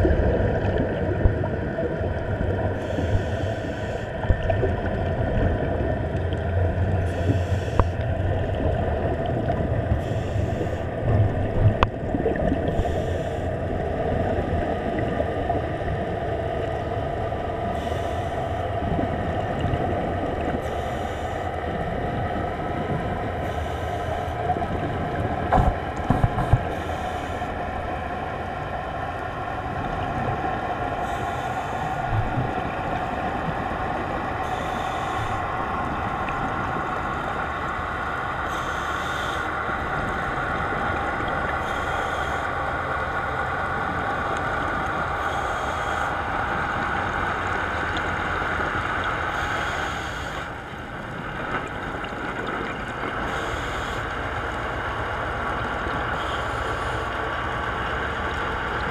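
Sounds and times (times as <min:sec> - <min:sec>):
boat engine drone underwater: 0:00.0 - 0:58.9
scuba breathing hiss: 0:02.8 - 0:04.1, 0:07.1 - 0:07.9, 0:10.0 - 0:10.9, 0:12.7 - 0:13.5, 0:17.7 - 0:18.6, 0:20.6 - 0:21.5, 0:23.4 - 0:24.4, 0:26.7 - 0:27.5, 0:31.0 - 0:32.0, 0:34.4 - 0:35.5, 0:38.5 - 0:39.5, 0:41.6 - 0:42.5, 0:45.2 - 0:46.2, 0:49.3 - 0:50.5, 0:53.3 - 0:54.1.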